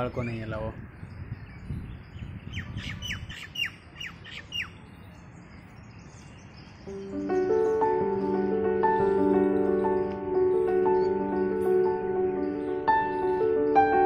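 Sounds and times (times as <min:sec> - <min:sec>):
background music: 0:06.9 - 0:14.0.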